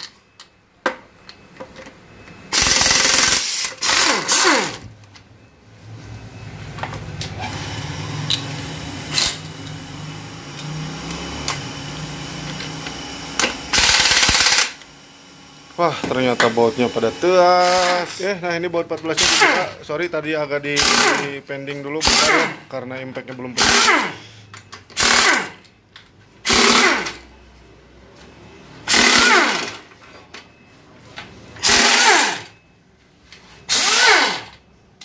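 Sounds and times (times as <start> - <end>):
pneumatic impact wrench bursts: 2.5 - 4.8, 7.4 - 15.0, 15.9 - 18.1, 19.1 - 19.8, 20.8 - 21.3, 22.0 - 22.7, 23.6 - 25.6, 26.4 - 27.3, 28.8 - 29.9, 31.6 - 32.5, 33.7 - 34.6.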